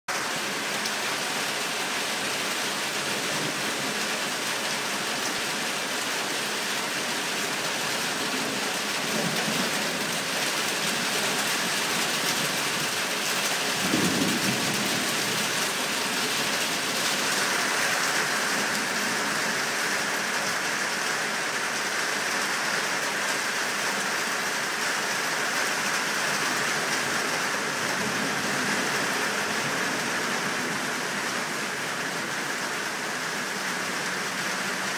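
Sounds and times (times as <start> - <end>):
steady rain hissing: 0.1 - 34.9
thunder rumbling: 13.7 - 17.6.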